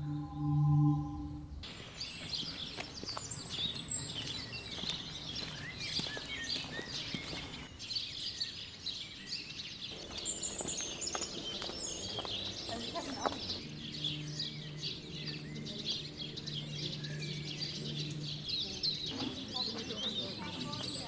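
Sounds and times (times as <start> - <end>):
low steady ringing tone: 0.0 - 1.6
birds chirping and singing: 0.0 - 21.0.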